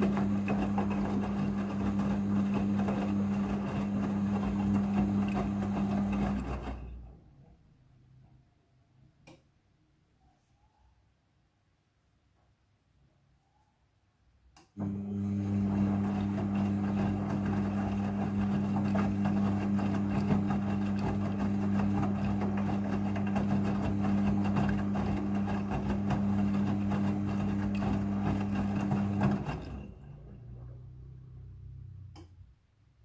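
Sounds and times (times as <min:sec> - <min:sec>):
washing machine motor humming: 0:00.0 - 0:07.1, 0:14.8 - 0:32.2
wet laundry tumbling: 0:15.4 - 0:30.0.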